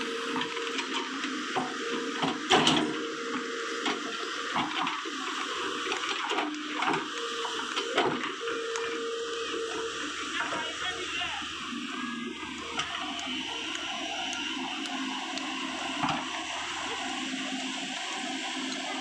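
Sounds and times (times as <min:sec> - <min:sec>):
hydraulic whine: 0:00.0 - 0:19.0
excavator hydraulic hiss: 0:05.7 - 0:10.6.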